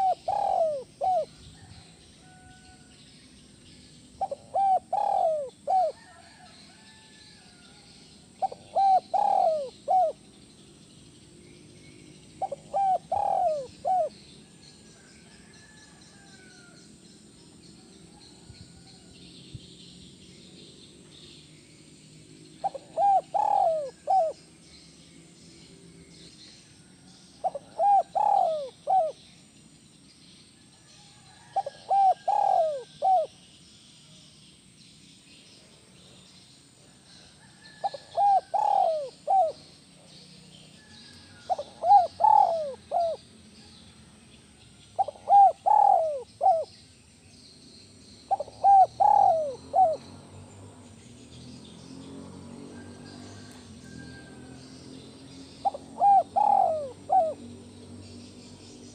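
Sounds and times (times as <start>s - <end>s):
dove cooing: 0.0s - 2.8s, 4.1s - 10.4s, 12.4s - 16.8s, 22.6s - 24.4s, 27.4s - 29.3s, 31.3s - 33.4s, 37.6s - 40.2s, 40.8s - 43.3s, 45.0s - 46.8s, 48.3s - 50.2s, 52.8s - 54.7s, 55.5s - 57.7s.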